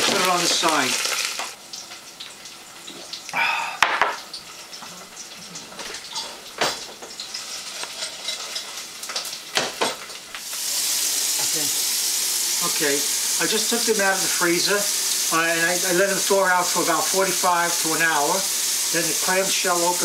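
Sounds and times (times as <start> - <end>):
metal pots and pans clinking: 5.5 - 10.2.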